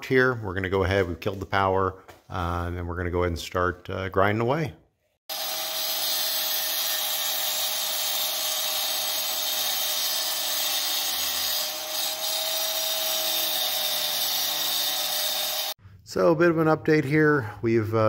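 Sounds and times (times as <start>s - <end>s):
angle grinder cutting tile: 5.3s - 15.8s.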